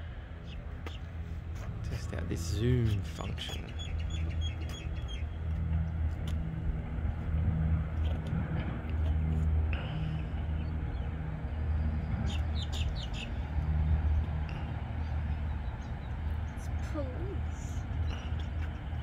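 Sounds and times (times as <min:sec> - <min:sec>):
engine hum: 0:00.0 - 0:19.0.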